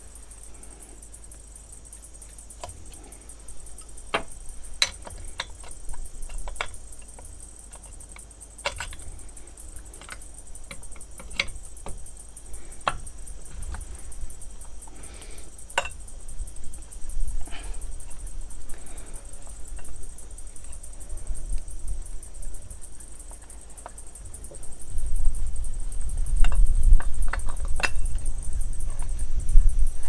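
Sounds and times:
hand tool clicks and knocks: 0:03.8 - 0:12.0, 0:12.7 - 0:13.9, 0:15.7 - 0:16.0, 0:26.4 - 0:28.3.

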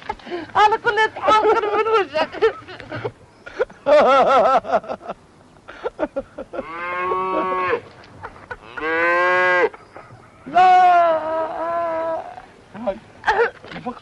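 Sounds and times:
cow mooing: 0:06.6 - 0:07.8.

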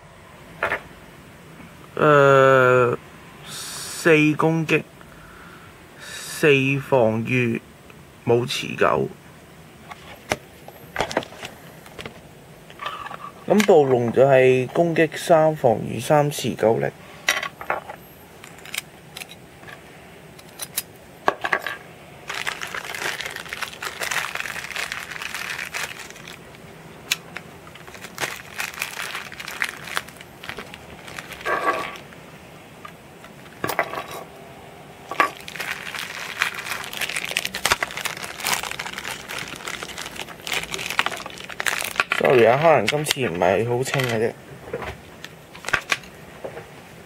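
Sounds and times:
plastic packaging crinkling: 0:22.2 - 0:32.2, 0:35.2 - 0:43.1, 0:45.5 - 0:46.1.

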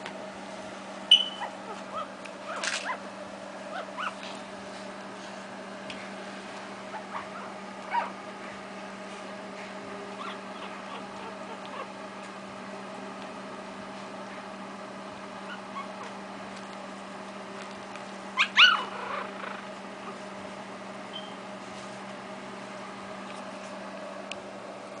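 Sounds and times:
steady low hum: 0:00.0 - 0:25.0
puppy squeaking: 0:01.1 - 0:03.0, 0:03.7 - 0:04.2, 0:06.9 - 0:08.2, 0:10.2 - 0:11.9, 0:15.5 - 0:16.1, 0:18.4 - 0:19.6.

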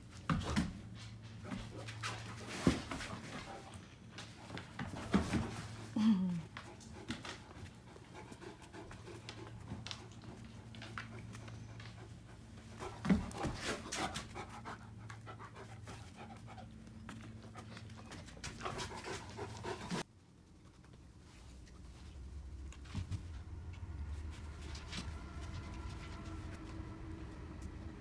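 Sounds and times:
steady low hum: 0:00.0 - 0:28.0
dogs panting: 0:06.4 - 0:20.1.

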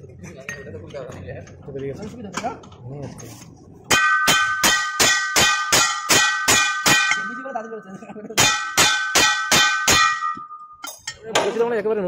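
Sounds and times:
hammer striking ringing metal: 0:03.9 - 0:11.2.

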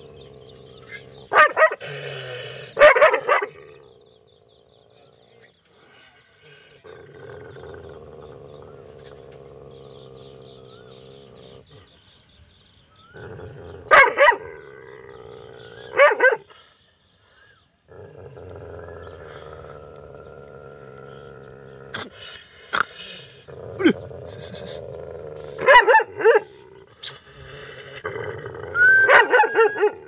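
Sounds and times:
dog barking: 0:01.3 - 0:01.8, 0:02.8 - 0:03.6, 0:13.9 - 0:14.5, 0:15.9 - 0:16.5, 0:25.6 - 0:26.5, 0:29.1 - 0:30.0.

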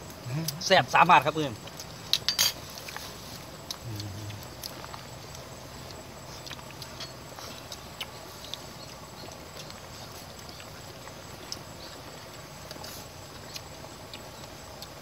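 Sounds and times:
steady outdoor hiss: 0:00.0 - 0:15.0.

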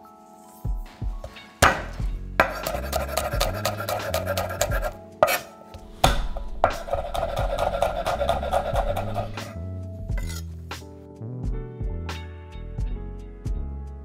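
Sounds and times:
knife chopping on wooden board: 0:01.6 - 0:09.5.

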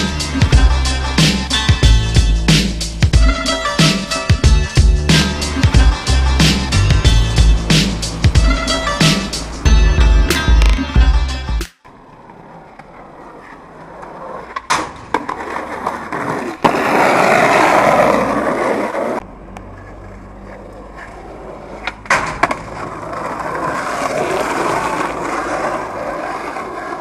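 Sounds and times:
skateboard wheels rolling on pavement: 0:00.0 - 0:27.0
skateboard clacks: 0:11.9 - 0:19.2, 0:19.8 - 0:27.0.

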